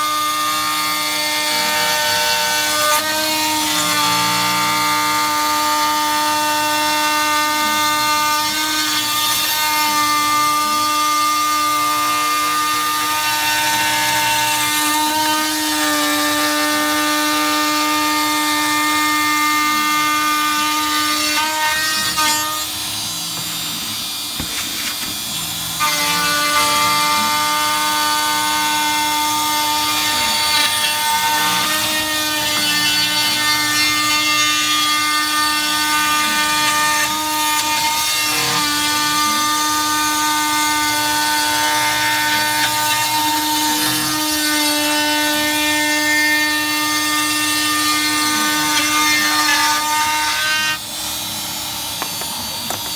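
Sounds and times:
router spindle whining: 0.0s - 52.9s.

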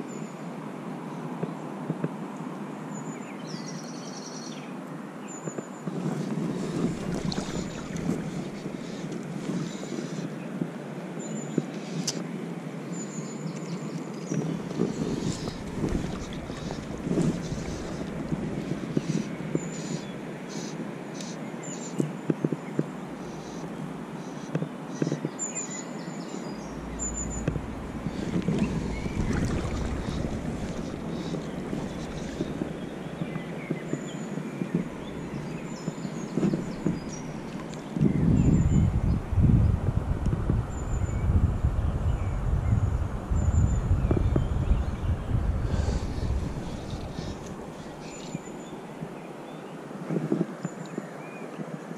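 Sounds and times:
wind buffeting microphone: 5.9s - 9.8s, 14.3s - 19.7s, 26.6s - 49.2s.

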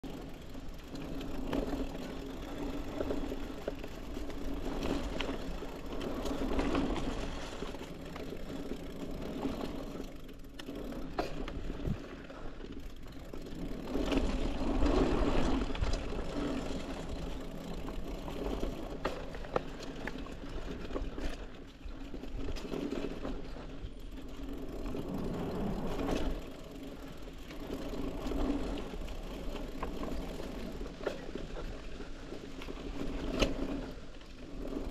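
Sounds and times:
bike clicks and rattles: 0.0s - 34.9s
bike tyres crunching on dirt: 0.0s - 34.9s.

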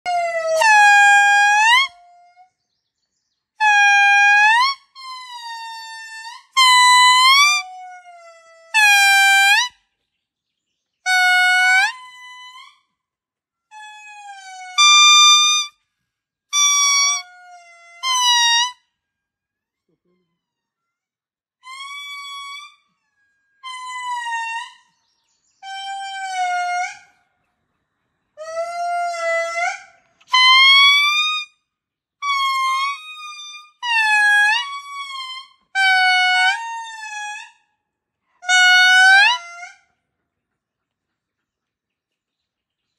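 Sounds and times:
lemur calling long pitched notes: 3.6s - 9.8s, 13.7s - 15.8s, 16.5s - 18.8s, 21.6s - 23.0s, 23.6s - 25.0s, 28.4s - 31.5s, 32.2s - 37.6s.

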